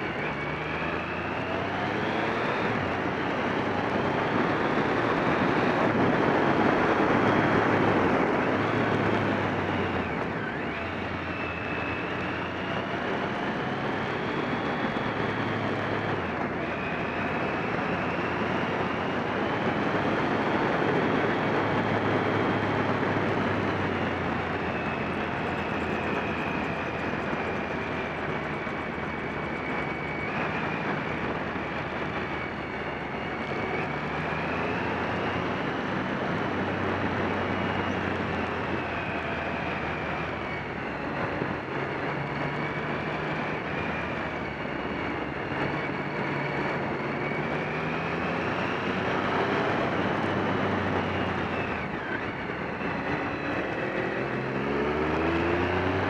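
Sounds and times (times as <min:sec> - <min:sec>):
motorcycle engine running: 0:00.0 - 0:56.0
wind rush on microphone: 0:00.0 - 0:56.0.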